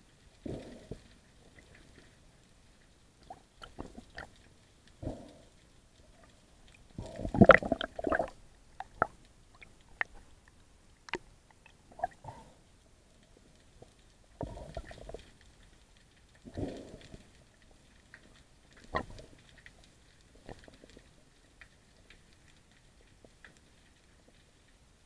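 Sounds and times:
underwater rushing noise: 6.9 - 10.3.

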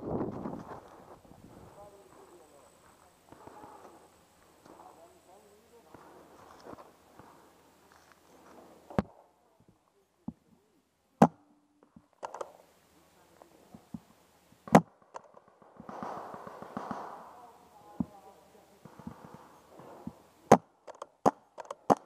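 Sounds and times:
rustling: 0.0 - 9.0
paintball marker shots: 14.6 - 17.3, 18.8 - 22.0.

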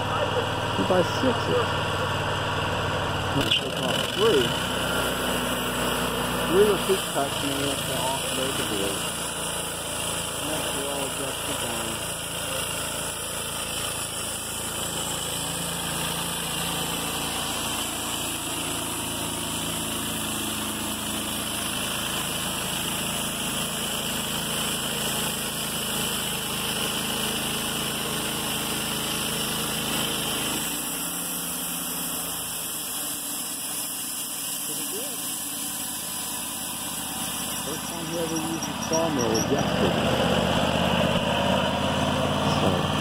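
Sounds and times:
band sawmill cutting log: 0.0 - 43.0.

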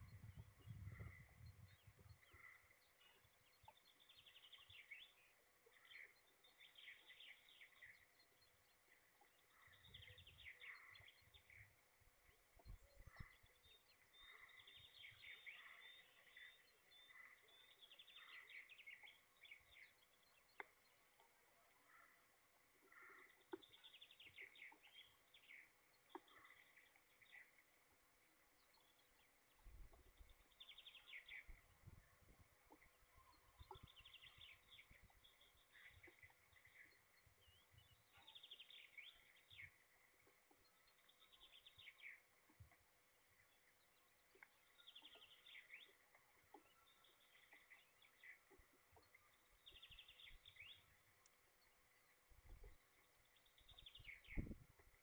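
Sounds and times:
distant songbird singing: 0.0 - 55.0.

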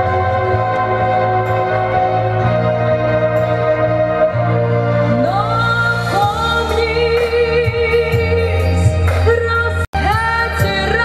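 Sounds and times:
backing track music: 0.0 - 11.0
woman singing: 5.2 - 11.0.

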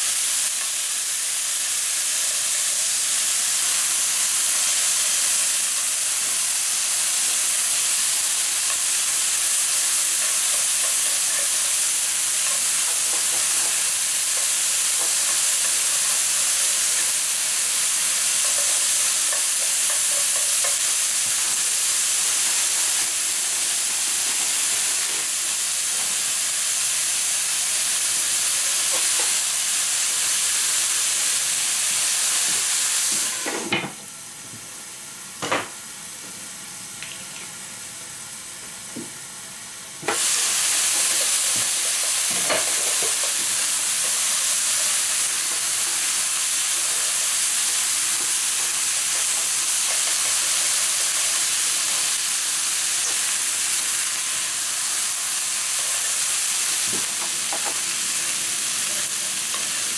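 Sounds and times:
food sizzling in a frying pan: 0.0 - 59.9
chopsticks stirring food: 8.6 - 21.5.

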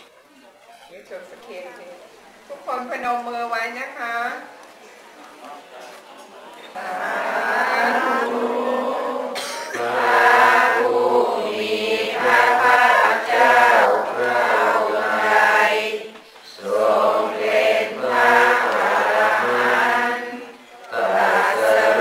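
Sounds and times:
group chanting in unison: 6.7 - 22.0.

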